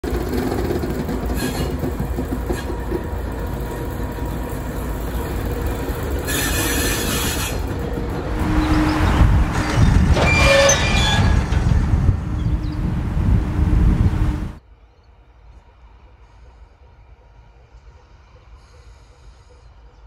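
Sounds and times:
diesel locomotive engine rumbling: 0.0s - 14.6s.

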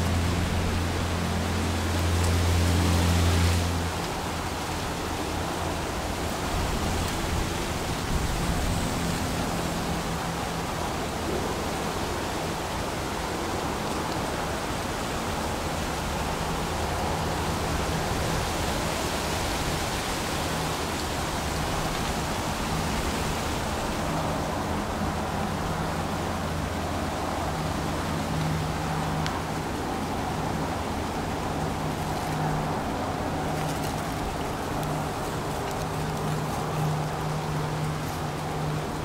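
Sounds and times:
wind rushing through woods: 0.0s - 39.0s.

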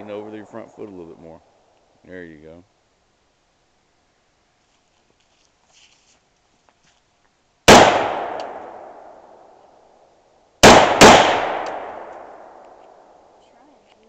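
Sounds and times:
rifle shots: 7.7s - 9.4s, 10.6s - 12.7s
gunshot echo: 7.7s - 9.5s, 10.6s - 12.8s.

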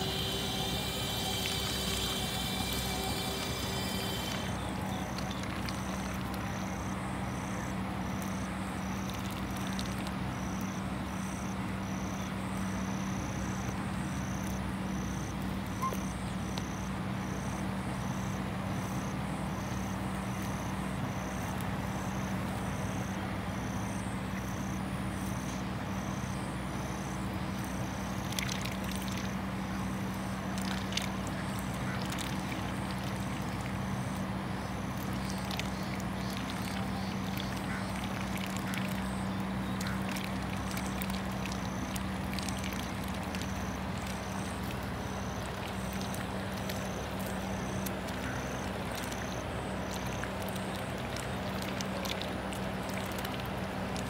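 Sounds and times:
pulsing insect-like chirp: 0.0s - 7.6s, 26.0s - 51.7s
steady low hum: 0.0s - 54.0s.

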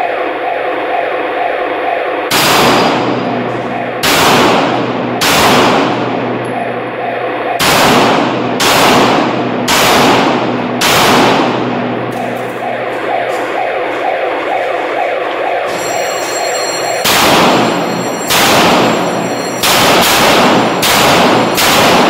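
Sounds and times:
handgun shots echoing: 4.0s - 6.2s, 7.6s - 12.7s, 17.0s - 22.0s.

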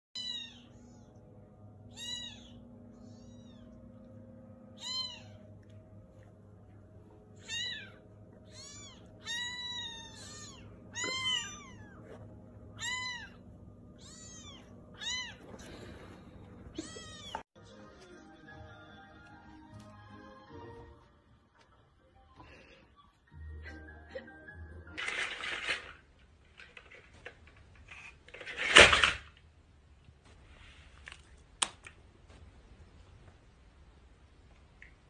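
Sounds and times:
kittens mewing: 7.4s - 16.1s.

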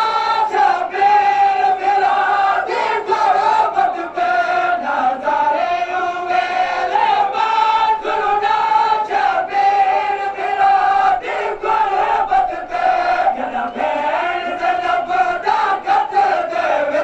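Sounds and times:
men chanting in unison: 0.0s - 17.0s.

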